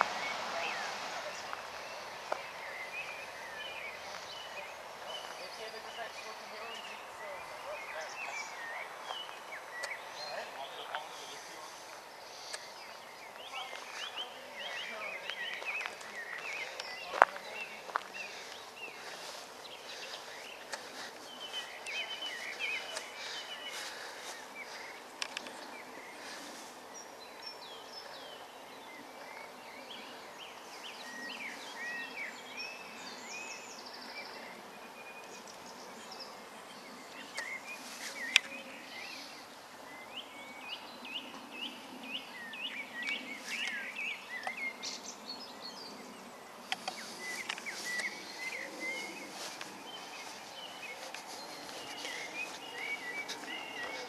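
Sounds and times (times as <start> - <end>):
songbirds singing: 0.0 - 54.0.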